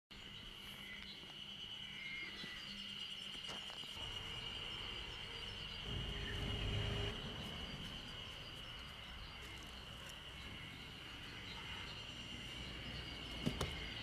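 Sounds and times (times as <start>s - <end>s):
low rumble: 4.0s - 9.4s.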